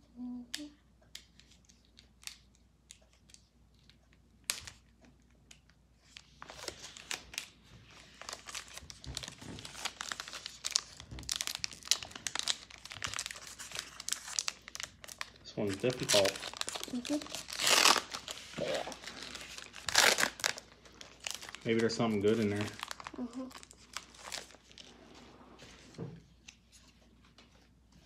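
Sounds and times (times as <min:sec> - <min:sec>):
foil wrapper crinkling and tearing: 0:06.4 - 0:25.0.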